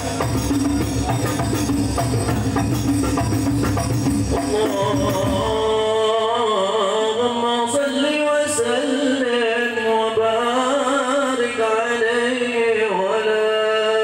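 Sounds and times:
man singing a devotional song: 4.2s - 14.0s.

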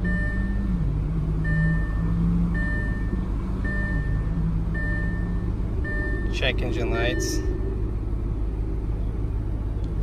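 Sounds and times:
car warning chime beeping: 0.0s - 7.7s
car engine idling: 0.0s - 10.0s.

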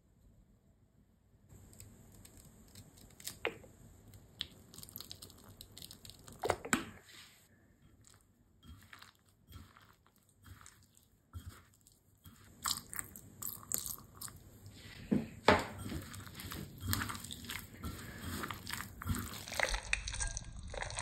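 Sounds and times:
squishing raw chicken by hand: 1.5s - 21.0s
clicks and scrapes in ceramic bowl: 7.9s - 13.0s, 15.7s - 20.4s.

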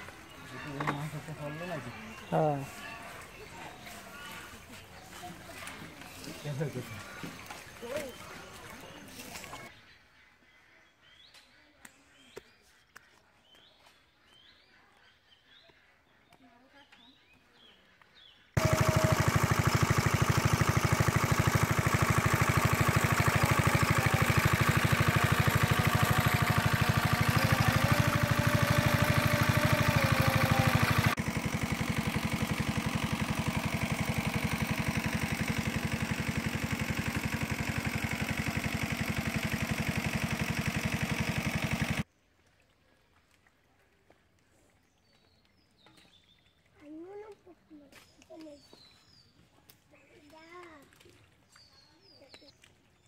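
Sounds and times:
water pump engine running: 0.0s - 9.7s, 18.6s - 42.1s.

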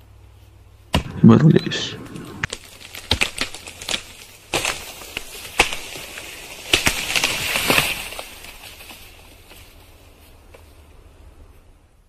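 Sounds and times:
rustling crackle: 1.9s - 11.7s
wood cracking and snapping: 2.0s - 9.2s.

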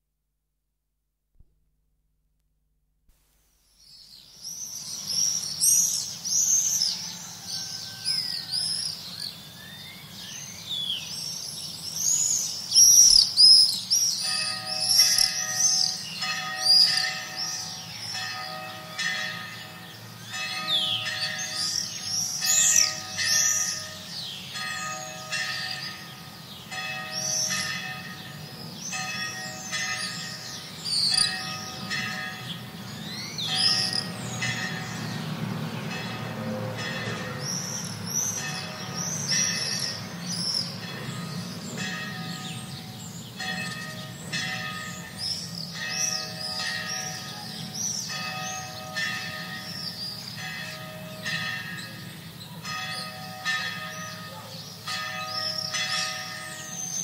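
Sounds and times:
swifts screaming: 4.4s - 18.4s
low traffic rumble: 14.2s - 56.8s.

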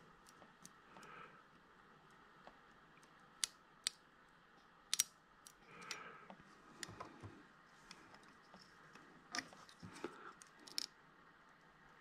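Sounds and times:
metal pick clicking on plastic: 4.9s - 6.0s, 10.4s - 10.9s.

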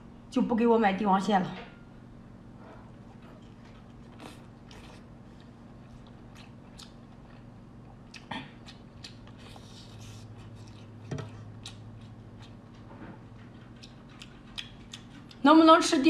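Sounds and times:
faint low hum: 0.0s - 16.0s
person chewing wetly: 3.2s - 15.4s.

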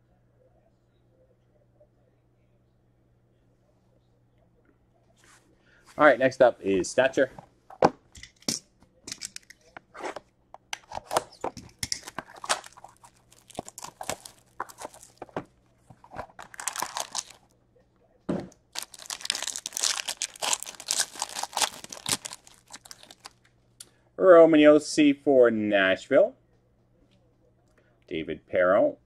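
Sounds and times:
card pack wrapper crinkling: 11.0s - 17.5s, 18.7s - 23.4s.

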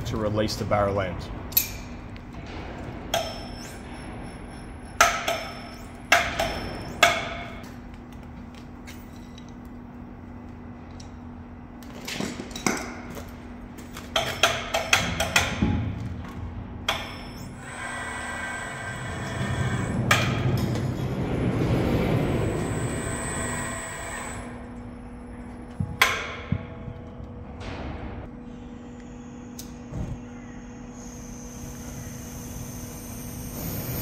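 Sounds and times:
metal clanks and knocks ringing: 1.5s - 7.7s.

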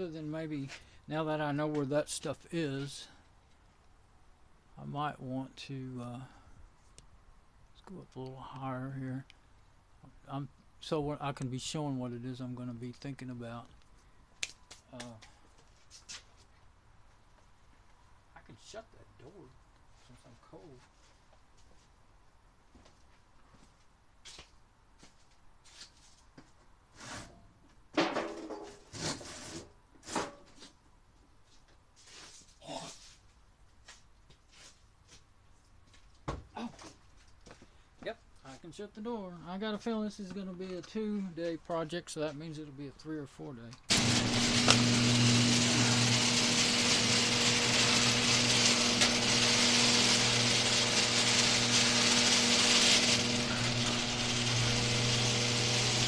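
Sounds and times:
door rollers rattling on tracks: 43.9s - 55.0s
garage door opener motor humming: 43.9s - 56.0s.

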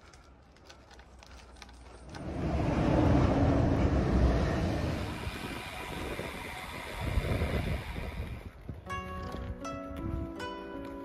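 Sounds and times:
tyre hiss on tarmac: 2.2s - 8.6s
wind rushing over microphone: 2.2s - 9.4s.

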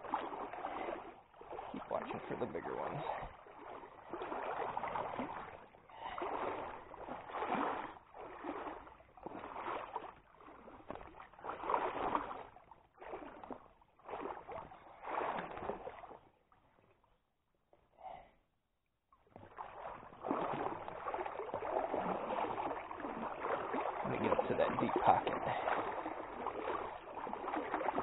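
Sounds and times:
legs wading through water: 0.0s - 17.2s, 19.2s - 28.0s.

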